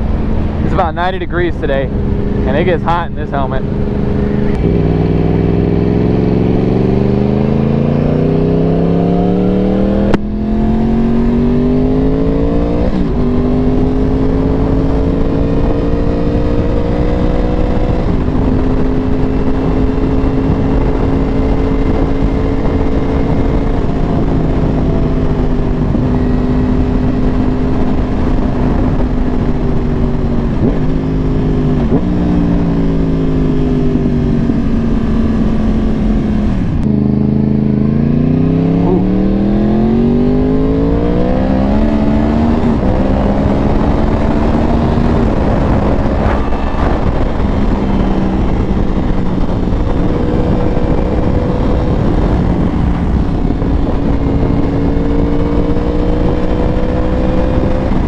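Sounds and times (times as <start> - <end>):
motorcycle engine accelerating: 0.0 - 58.0.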